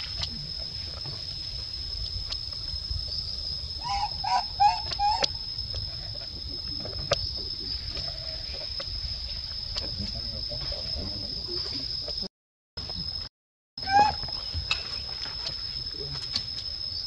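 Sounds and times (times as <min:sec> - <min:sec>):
baby monkey cooing: 0:03.8 - 0:05.4, 0:13.8 - 0:14.2.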